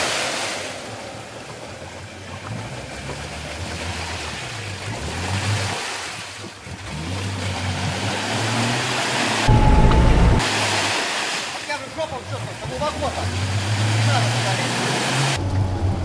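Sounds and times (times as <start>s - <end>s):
water splashing and sloshing: 0.0s - 16.0s
jeep engine revving: 6.7s - 10.5s, 12.4s - 16.0s.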